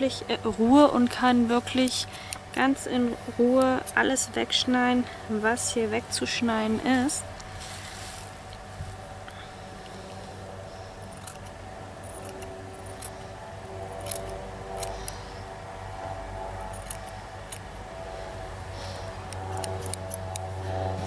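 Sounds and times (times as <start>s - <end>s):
scissors snipping fur: 1.0s - 4.3s, 11.0s - 15.3s, 16.6s - 17.9s, 18.8s - 21.0s.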